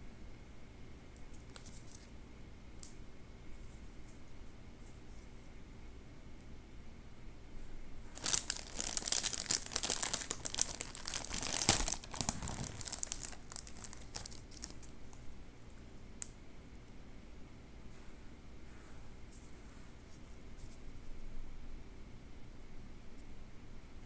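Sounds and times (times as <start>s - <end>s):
plastic wrapper crinkling and tearing: 1.4s - 2.1s, 8.2s - 15.2s.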